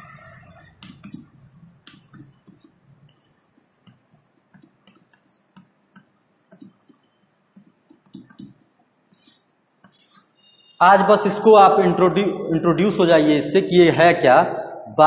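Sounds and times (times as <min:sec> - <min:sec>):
chalk writing on blackboard: 0:00.2 - 0:10.8.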